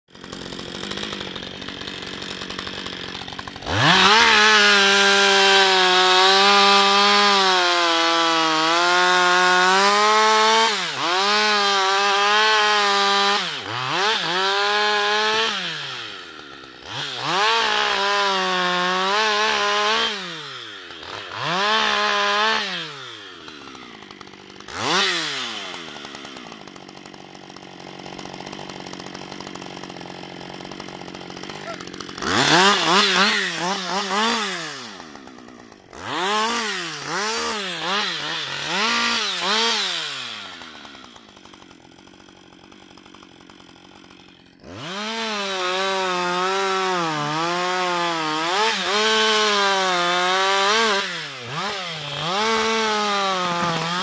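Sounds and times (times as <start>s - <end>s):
chainsaw cutting a tree trunk: 0.1s - 54.0s.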